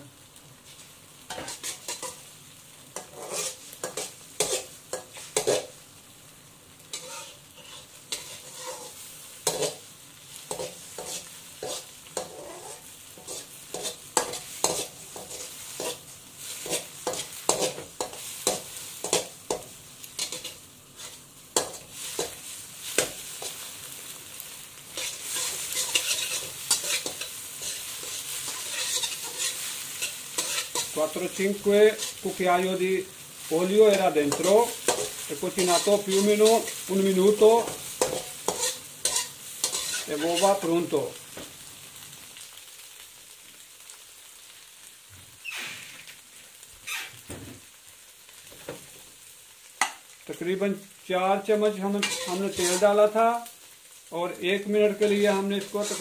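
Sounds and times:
eggs sizzling in oil: 0.0 - 56.0
metal spatula scraping a pan: 0.7 - 2.3, 3.0 - 5.8, 6.9 - 23.8, 24.8 - 32.7, 33.5 - 40.8, 51.8 - 53.1, 54.9 - 56.0.

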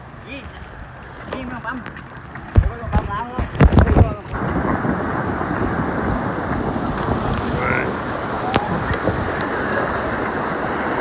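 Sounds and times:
river rapids rushing: 4.4 - 11.0.

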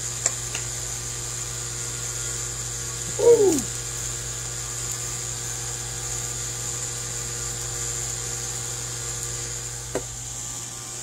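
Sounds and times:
machine hum: 3.0 - 3.8.

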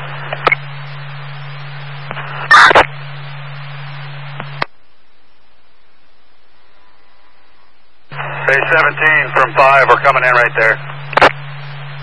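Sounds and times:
loud radio crackle: 0.0 - 4.8, 6.4 - 12.0
low radio hum: 0.0 - 12.0
radio static hiss: 0.0 - 12.0
transmission cut-off click: 10.8 - 11.4.

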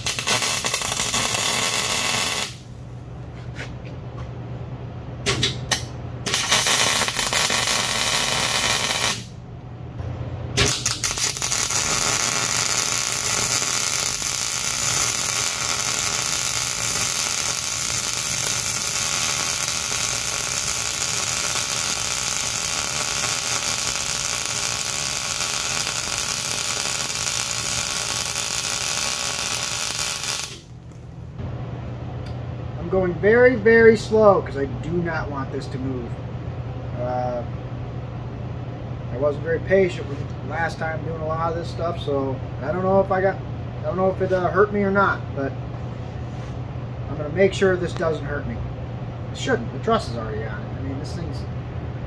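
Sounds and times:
welder arc crackling and hissing: 0.0 - 3.0, 5.4 - 9.4, 10.6 - 31.1.

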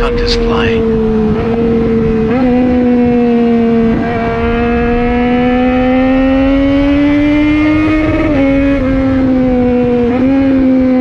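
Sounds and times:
wind rushing on microphone: 0.0 - 5.1
motorcycle engine at speed: 0.0 - 11.0.

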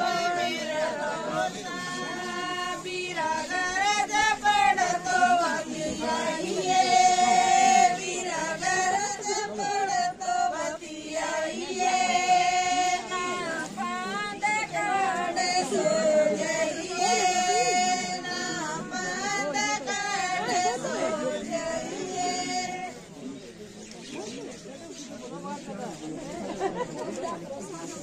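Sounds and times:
women singing together: 0.0 - 23.1.

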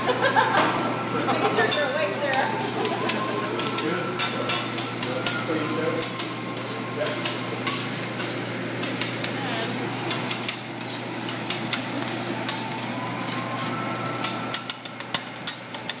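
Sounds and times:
food sizzling on a griddle: 0.0 - 16.0
metal spatulas scraping and clacking: 2.8 - 9.4, 10.0 - 11.9.

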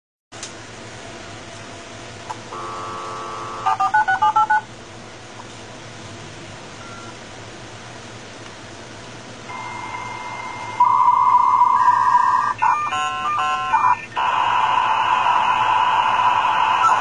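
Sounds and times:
dial tone: 2.6 - 4.6, 9.5 - 17.0
touch-tone digits: 2.6 - 4.7, 9.5 - 14.3.

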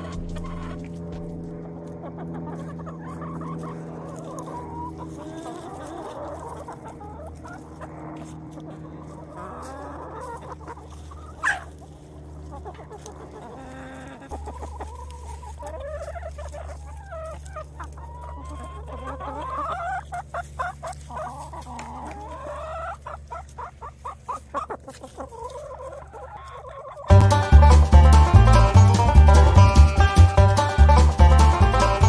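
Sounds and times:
steady low hum: 0.0 - 18.1
hens clucking and calling: 0.0 - 32.0.

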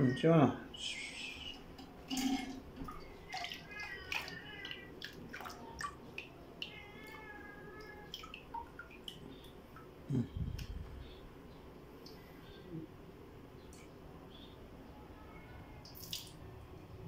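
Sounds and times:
water splashing in bucket: 1.7 - 6.8
cat meowing: 3.3 - 5.0, 6.6 - 8.1.

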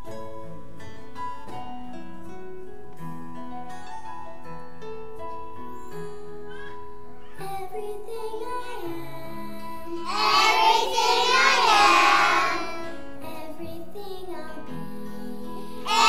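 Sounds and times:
children singing together: 9.9 - 14.4, 15.2 - 16.0.

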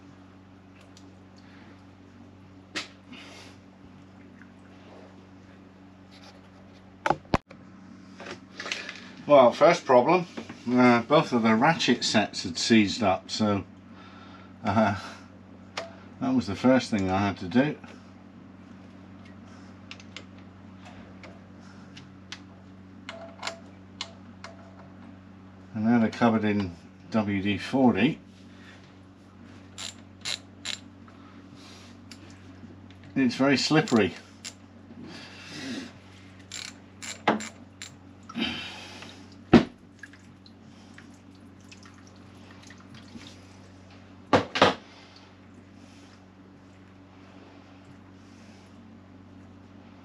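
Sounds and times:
steady low hum: 0.0 - 50.0
socket ratchet clicking: 29.8 - 30.8, 33.9 - 34.6, 36.5 - 38.0.

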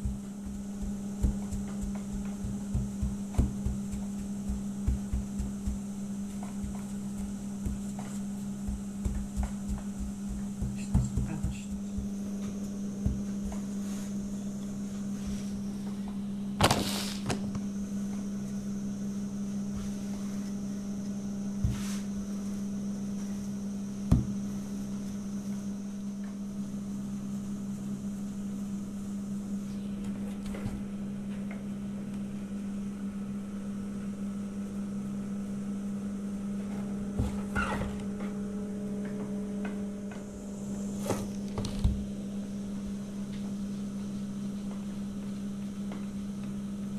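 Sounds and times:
rolling pin knocking on board: 0.0 - 13.8
low motor hum: 0.0 - 16.6.

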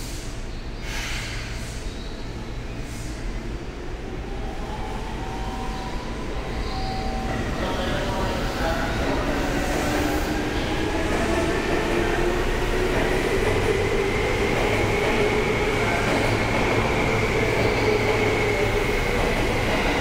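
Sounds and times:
electric train rumbling: 0.0 - 20.0.

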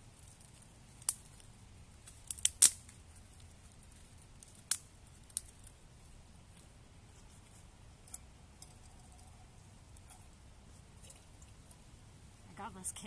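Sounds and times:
dry twigs snapping: 0.1 - 5.8.

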